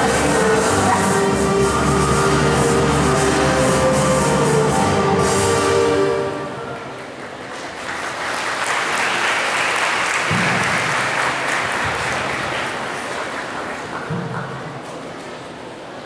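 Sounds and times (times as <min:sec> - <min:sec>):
choir singing: 0:00.0 - 0:06.7
audience applauding: 0:06.6 - 0:14.1.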